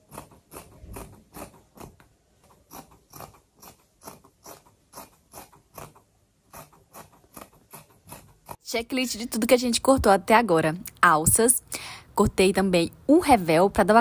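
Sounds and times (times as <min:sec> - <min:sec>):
scissors snipping fabric: 0:00.0 - 0:08.6.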